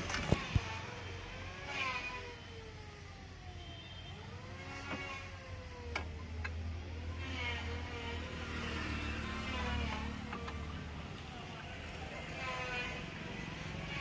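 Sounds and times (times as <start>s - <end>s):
vehicle engines passing: 4.5s - 14.0s.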